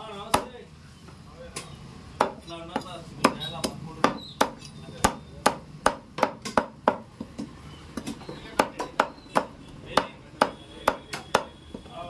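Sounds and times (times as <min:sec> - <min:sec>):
cleaver chopping meat: 0:02.2 - 0:07.1, 0:08.0 - 0:11.6.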